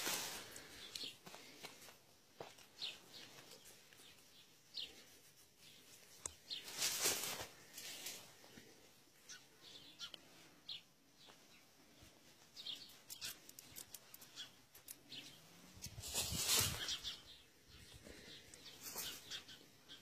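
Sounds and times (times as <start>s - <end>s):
small birds chirping: 0.4s - 20.0s
handling rustle: 5.6s - 8.4s, 15.8s - 17.1s.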